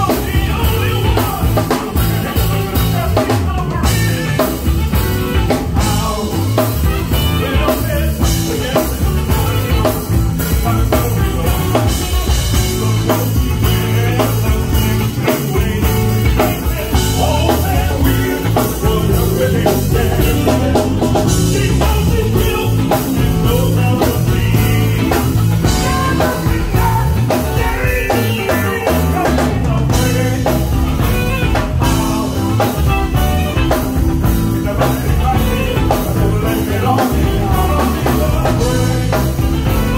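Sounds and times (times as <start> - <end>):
drum kit beat: 0.0 - 39.9
live band playing dance music: 0.0 - 39.9
person singing: 0.0 - 39.9.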